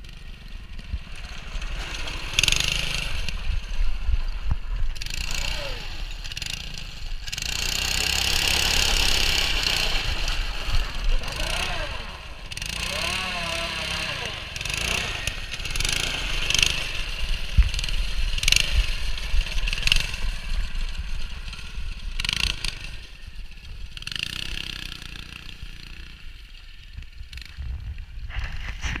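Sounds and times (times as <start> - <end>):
small go-kart engine running: 0.0 - 29.0.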